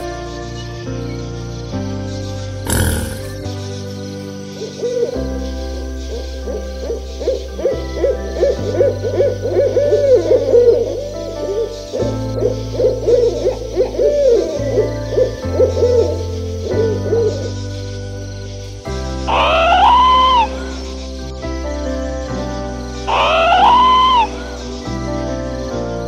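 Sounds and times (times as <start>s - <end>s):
background music with bass line: 0.0s - 3.9s.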